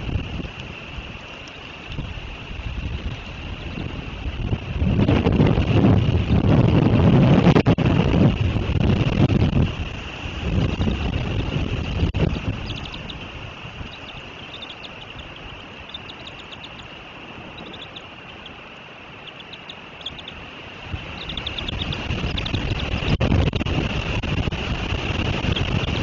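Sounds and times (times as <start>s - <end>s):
wind buffeting microphone: 0.0s - 26.0s
short high-pitched bird chirps: 11.9s - 13.3s, 21.1s - 23.2s.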